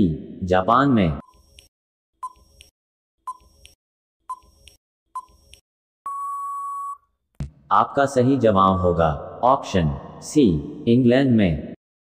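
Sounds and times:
long steady beep: 6.1 - 7.0
short electronic beeps: 6.1 - 7.0.

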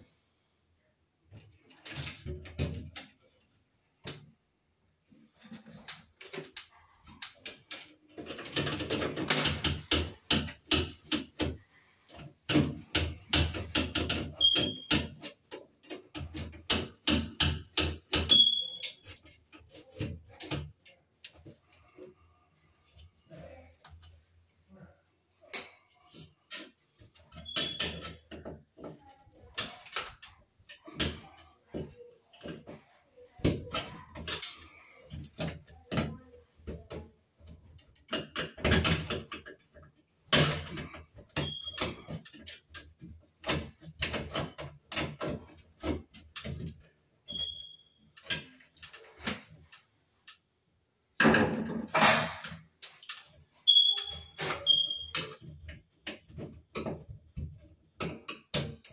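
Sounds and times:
clicks and rattles on sheet metal: 5.4 - 22.1, 51.2 - 58.9.

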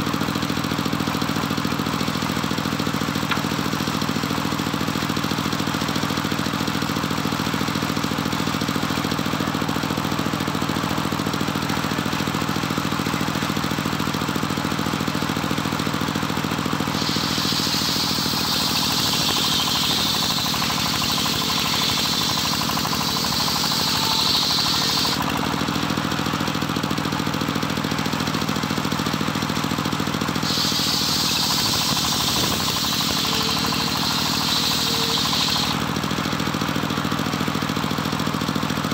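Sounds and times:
engine low drone: 14.9 - 38.5
saw blade cutting wood: 16.8 - 25.6, 30.4 - 35.9.

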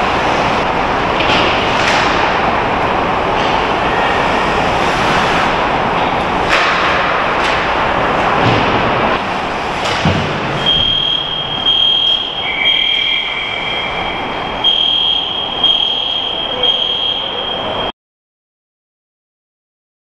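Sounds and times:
fire alarm high tone: 10.6 - 17.9
lower alarm tone: 10.6 - 17.9.

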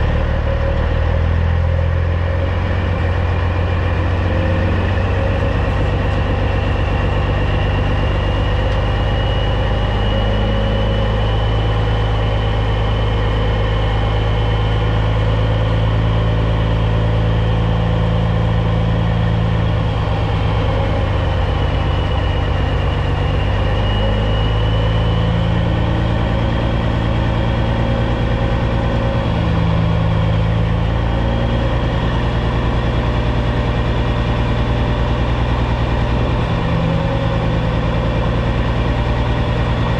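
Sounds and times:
truck diesel engine running: 0.0 - 39.9
faint high whine: 3.4 - 32.0.

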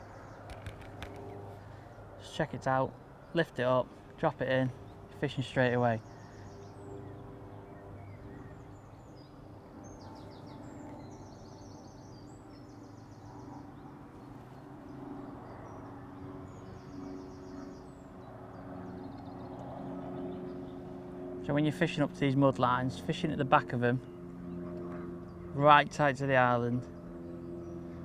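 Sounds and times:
bird chirps and trills: 0.0 - 3.6, 4.2 - 28.0
steady low hum: 0.0 - 28.0.

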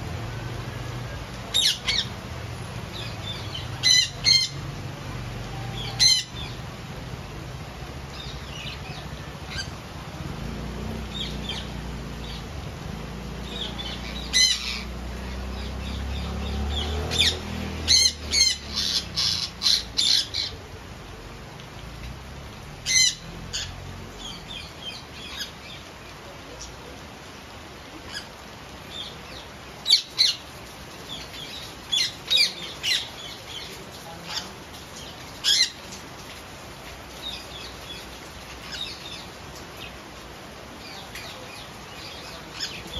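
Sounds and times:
rain falling: 0.0 - 42.9
parakeets squawking: 3.0 - 4.6, 13.5 - 14.9, 15.6 - 20.6, 22.8 - 24.3.

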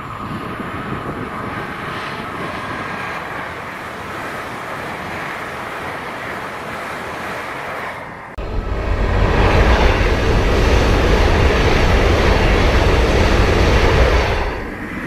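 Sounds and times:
train wheels rushing on rails: 0.0 - 15.0.

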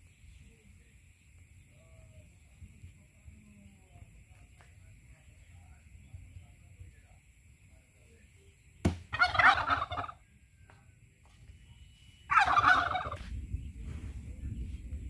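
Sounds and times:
turkey gobbling: 9.1 - 10.2, 12.3 - 13.2.

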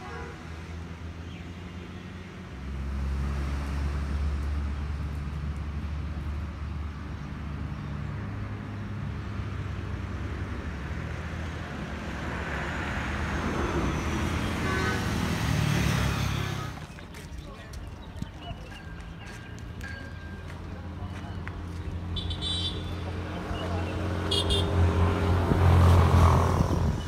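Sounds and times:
passing traffic road noise: 0.0 - 27.0.

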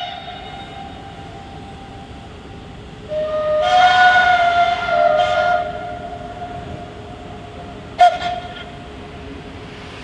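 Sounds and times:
train horn blasts: 0.0 - 1.4, 3.1 - 6.8, 7.9 - 8.7
train rumbling: 0.0 - 10.0.

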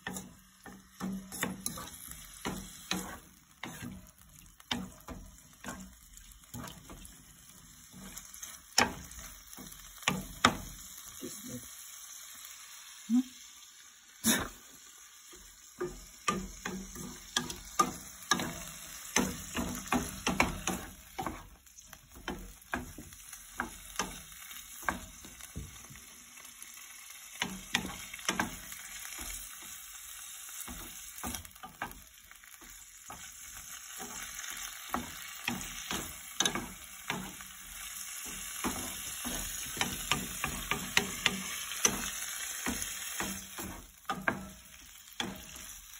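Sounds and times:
shrimp sizzling in pan: 0.0 - 45.9
wooden spatula scraping pan: 1.1 - 7.0.

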